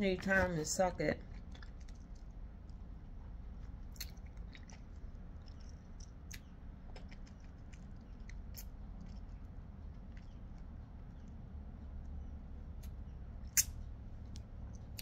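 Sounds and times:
wet mouth smacks and clicks: 3.9 - 4.8, 12.8 - 13.8.

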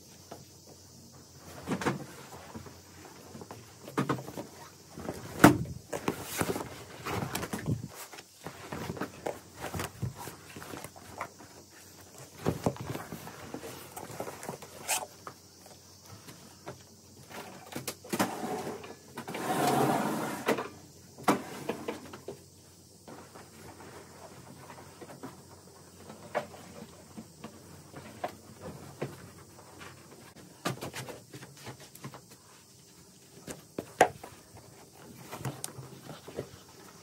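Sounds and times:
rug rustling: 4.3 - 15.1
rug dragging and flapping: 18.2 - 20.6.

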